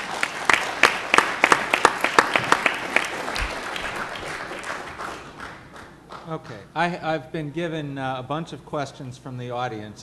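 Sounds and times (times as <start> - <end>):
audience applause: 0.0 - 6.3.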